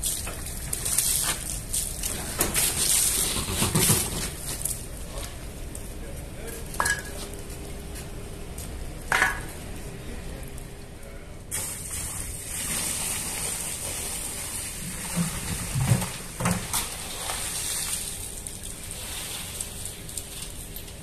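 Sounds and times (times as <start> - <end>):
water gushing and splashing: 11.6 - 20.1.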